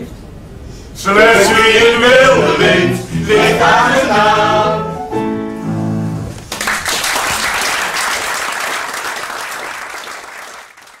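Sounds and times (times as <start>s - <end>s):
audience applauding: 6.4s - 11.0s.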